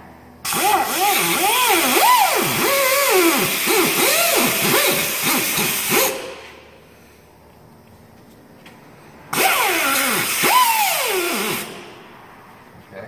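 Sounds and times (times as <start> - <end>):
pneumatic cutoff tool whining: 0.4 - 6.8, 9.3 - 12.0.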